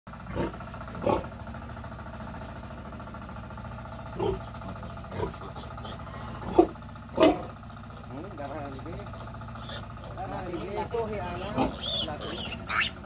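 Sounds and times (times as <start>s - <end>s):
steady machine hum: 0.1s - 13.0s
piglets squealing grunts: 4.2s - 7.6s, 9.4s - 13.0s.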